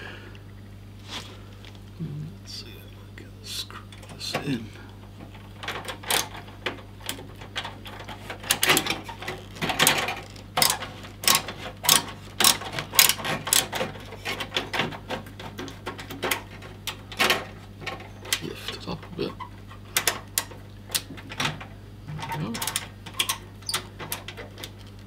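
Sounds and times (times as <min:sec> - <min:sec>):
screwdriver turning screw in metal: 0:09.4 - 0:13.8.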